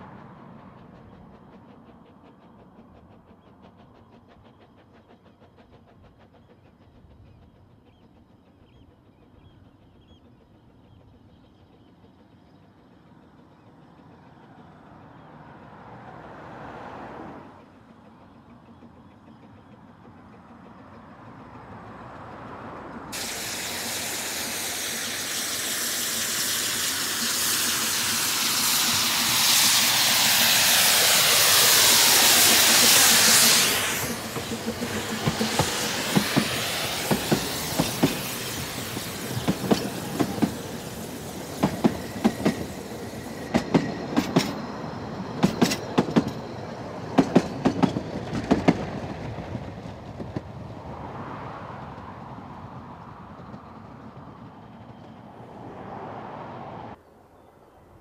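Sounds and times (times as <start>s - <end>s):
steam locomotive running: 0.0s - 56.9s
loud steam hissing: 23.1s - 49.3s.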